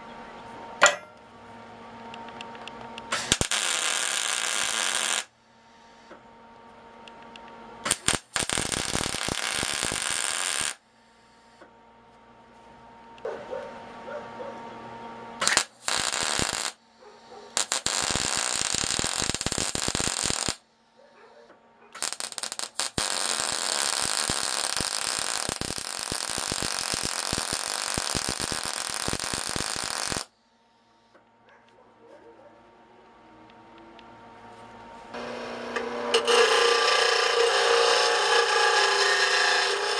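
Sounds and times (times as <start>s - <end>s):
welder arc crackling: 3.1s - 5.3s, 7.9s - 10.8s, 15.4s - 16.8s, 17.5s - 20.6s, 22.0s - 30.3s, 35.2s - 39.9s.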